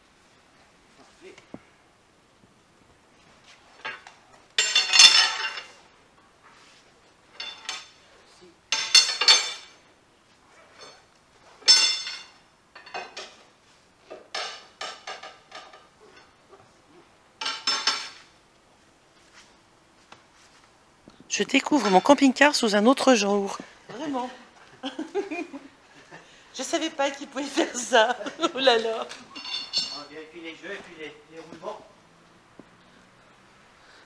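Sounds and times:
metallic clanking and rattling: 3.8s - 5.8s, 8.7s - 9.8s, 29.3s - 30.1s.

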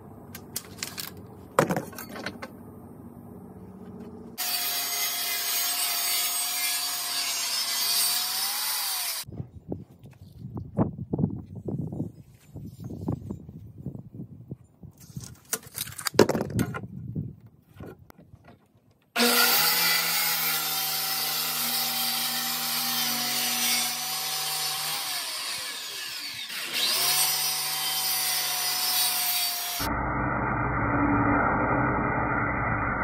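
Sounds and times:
circular saw cutting wood: 4.4s - 9.3s, 19.2s - 33.0s.

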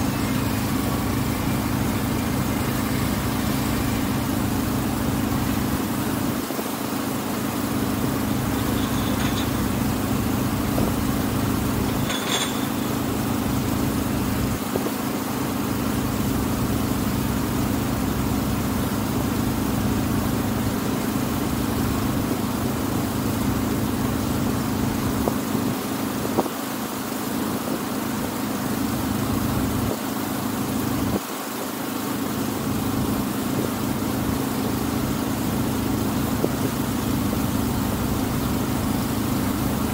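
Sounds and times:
boat engine humming: 0.0s - 20.7s.

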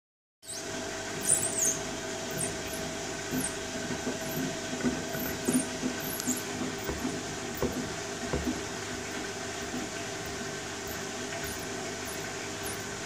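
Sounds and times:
washing machine drum hum: 0.4s - 13.0s.

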